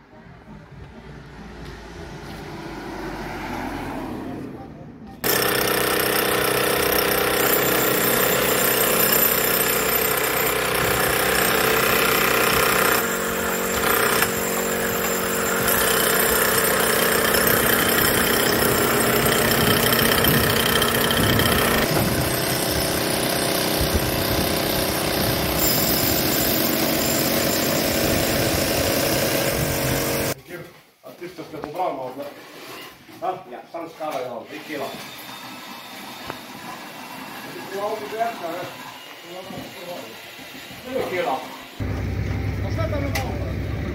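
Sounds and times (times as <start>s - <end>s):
demolition hammer chiselling masonry: 5.2s - 30.4s.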